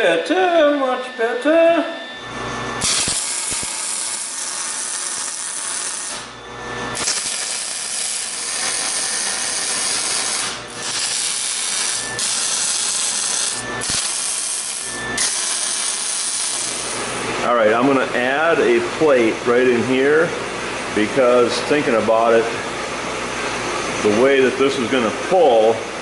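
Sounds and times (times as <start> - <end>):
electric arc welding sizzle: 2.8 - 17.2.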